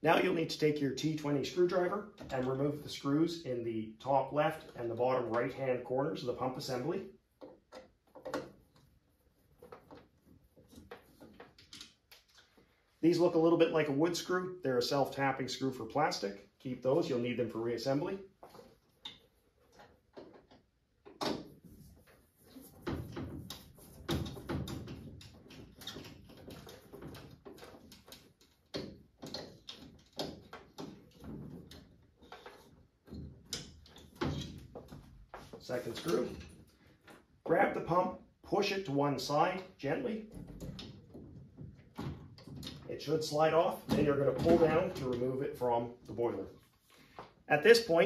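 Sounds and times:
plastic and metal parts knocking: 7.4 - 8.9, 22.8 - 35.6.

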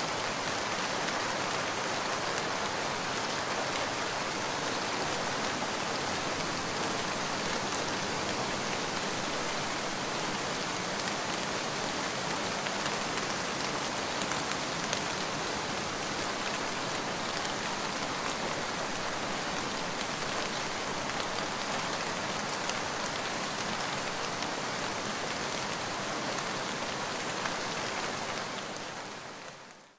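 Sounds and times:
steady rain falling: 0.0 - 29.9.

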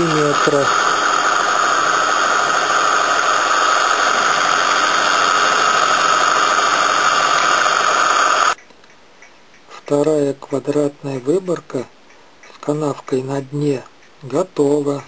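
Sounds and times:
milling machine running: 0.0 - 8.6.

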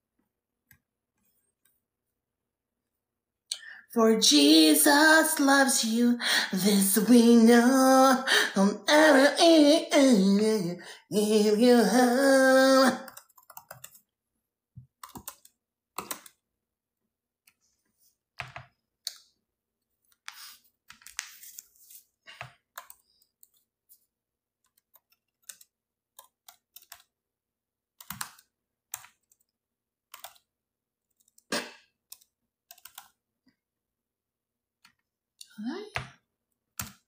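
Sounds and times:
laptop keyboard typing: 12.9 - 14.2, 14.8 - 16.5, 22.4 - 27.2, 27.9 - 33.3, 36.6 - 37.0.

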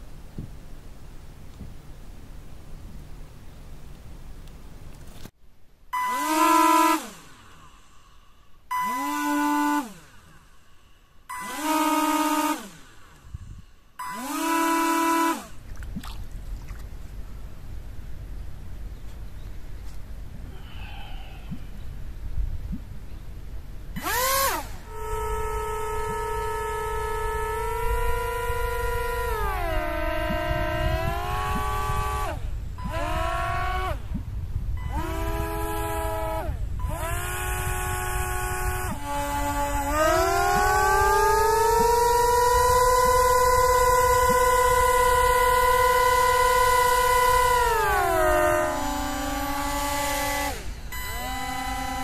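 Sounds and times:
wind rumble on microphone: 0.0 - 5.2, 13.2 - 13.8, 15.6 - 52.0
electric motors whining: 6.0 - 8.1, 8.7 - 10.6, 11.2 - 15.7, 23.9 - 52.0.

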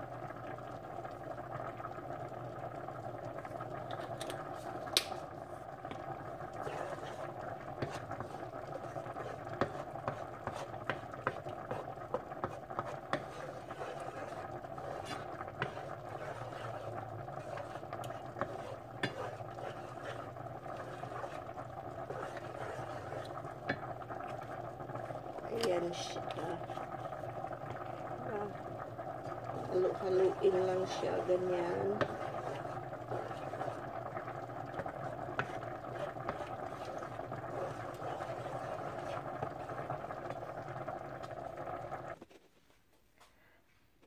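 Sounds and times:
steady low hum: 0.0 - 42.2
spoon stirring pasta in pot: 3.5 - 42.4
utensil scraping pot: 5.8 - 42.2.

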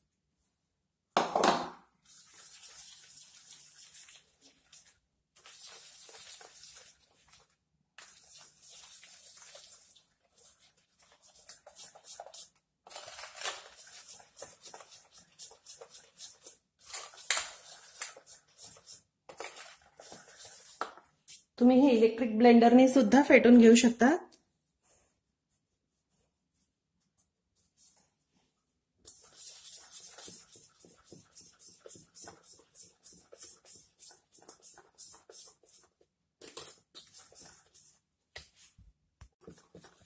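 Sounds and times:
whisk scraping steel bowl: 13.6 - 20.9, 29.1 - 38.0.

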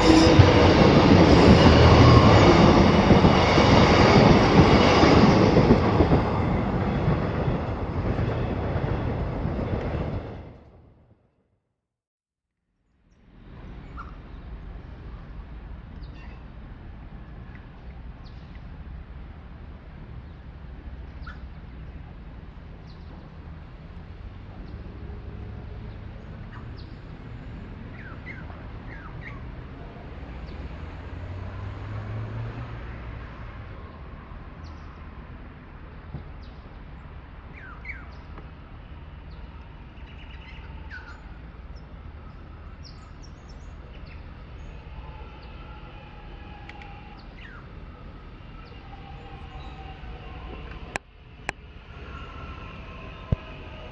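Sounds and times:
electric train whine: 0.0 - 10.9, 37.1 - 53.9.

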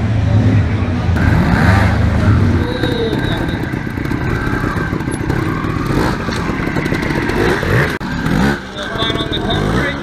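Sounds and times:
motorcycle engine revving: 0.2 - 10.0.

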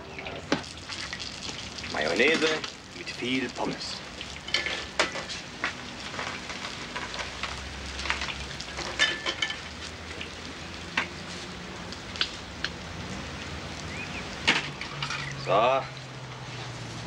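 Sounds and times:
oil sizzling in deep fryer: 0.0 - 17.0
sharp clicks at fryer: 4.2 - 11.2, 11.9 - 12.8, 14.4 - 15.3.

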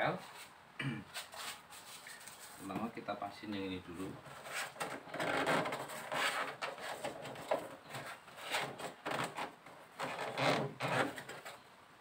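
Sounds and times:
hands rubbing foil foam pad: 1.1 - 2.9, 4.3 - 11.6.

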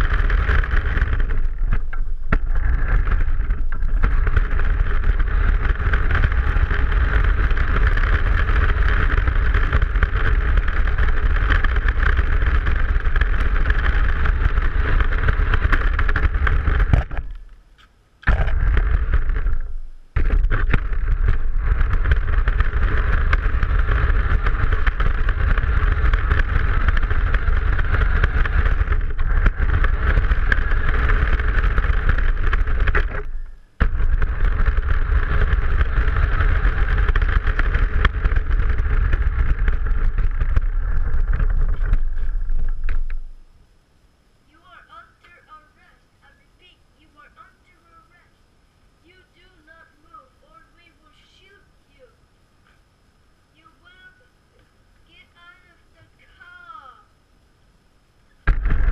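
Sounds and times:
tyres rumbling on paving stones: 0.0 - 17.6, 18.2 - 43.5, 58.4 - 58.9.

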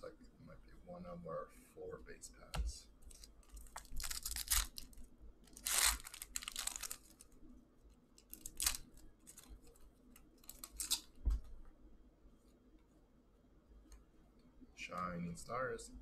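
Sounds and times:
plastic wrapper tearing: 3.1 - 7.3, 8.2 - 9.7, 10.4 - 11.2.

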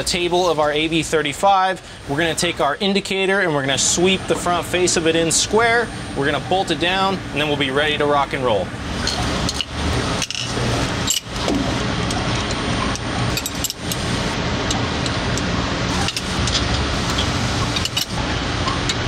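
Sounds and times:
steady mechanical hum: 0.0 - 19.0
metallic clinks of bolts: 13.3 - 14.0.

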